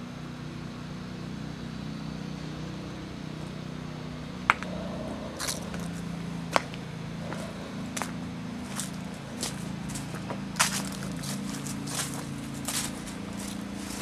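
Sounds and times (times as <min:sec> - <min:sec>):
steady low hum: 0:00.0 - 0:14.0
footsteps on dry leaves: 0:04.6 - 0:14.0.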